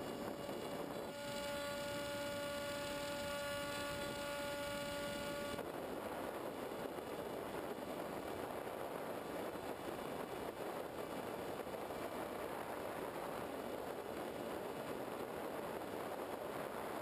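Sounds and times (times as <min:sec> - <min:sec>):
electric motor and propeller whine: 0:00.0 - 0:05.6.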